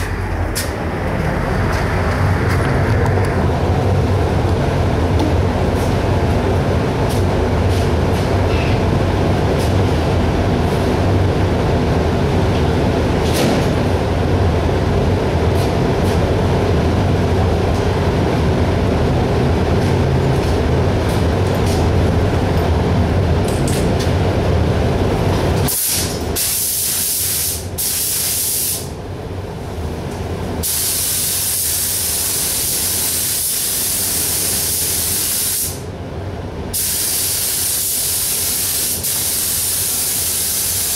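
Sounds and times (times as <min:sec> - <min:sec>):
low machine drone: 0:00.0 - 0:26.2
spray gun hissing: 0:25.7 - 0:28.9, 0:30.6 - 0:35.8, 0:36.7 - 0:40.9.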